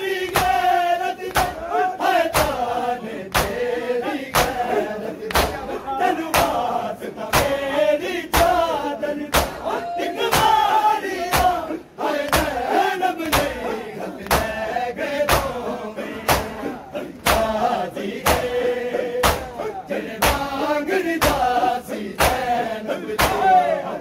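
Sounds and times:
men chanting: 0.0s - 24.0s
hands slapping chests: 0.2s - 0.6s, 1.2s - 1.6s, 2.3s - 2.7s, 3.3s - 3.6s, 4.3s - 5.7s, 6.3s - 6.7s, 8.3s - 8.6s, 9.3s - 9.6s, 10.3s - 10.6s, 11.3s - 11.6s, 12.2s - 12.6s, 13.2s - 13.6s, 14.2s - 14.6s, 15.2s - 15.6s, 16.2s - 18.6s, 19.2s - 19.6s, 20.2s - 20.6s, 21.2s - 21.6s, 22.2s - 22.5s, 23.2s - 23.6s.

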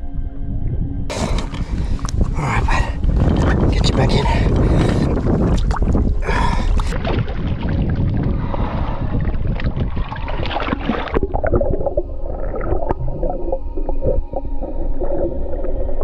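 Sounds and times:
muffled underwater bubbling: 1.1s - 16.0s
water splashing and sloshing: 1.1s - 16.0s.

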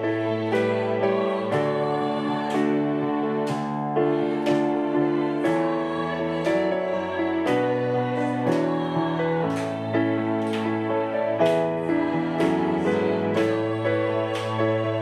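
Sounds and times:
piano chords: 0.0s - 15.0s
women's choir singing a hymn: 0.0s - 15.0s.

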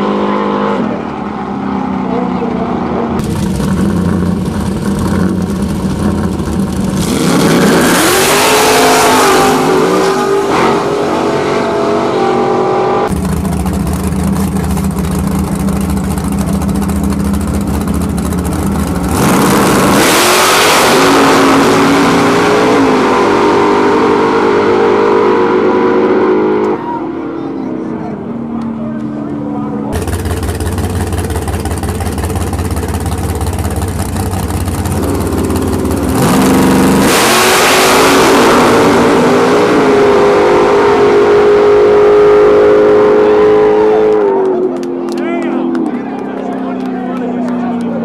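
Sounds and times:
race car engines revving: 0.0s - 48.0s.

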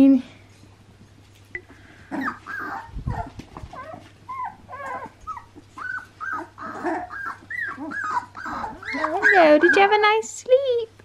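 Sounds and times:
puppies whining and whimpering: 2.0s - 10.1s.

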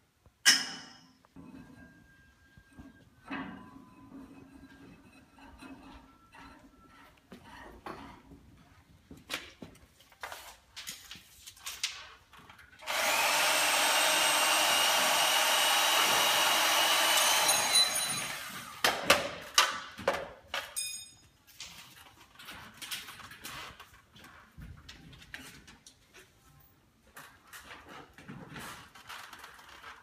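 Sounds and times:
power tool whining: 12.8s - 18.8s.

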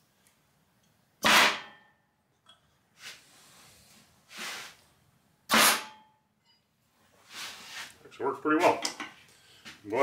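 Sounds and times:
compressed air blasts: 1.2s - 1.6s, 4.3s - 4.8s, 5.5s - 5.9s.

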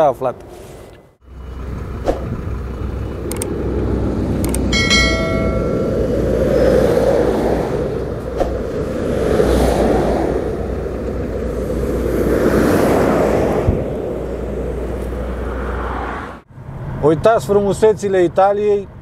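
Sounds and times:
car road and engine rumble: 0.0s - 19.0s
clicks: 3.2s - 3.5s, 4.4s - 5.2s
short ringing chime: 4.7s - 6.2s.

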